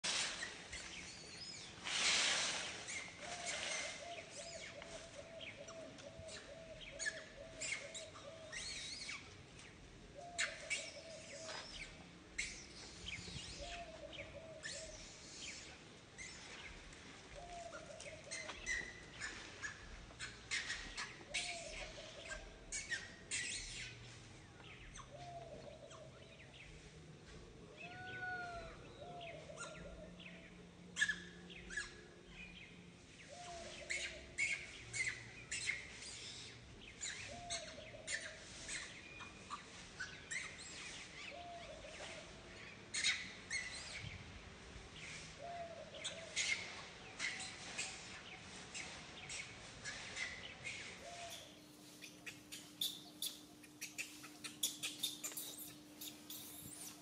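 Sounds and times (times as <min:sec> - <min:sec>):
infant monkey squealing: 0:52.3 - 0:57.0
monkey whimpering call: 0:52.3 - 0:57.0.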